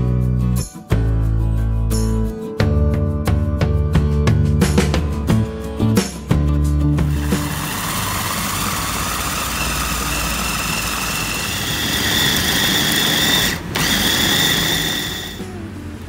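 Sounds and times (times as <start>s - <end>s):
electric food chopper motor whine: 7.0s - 15.6s.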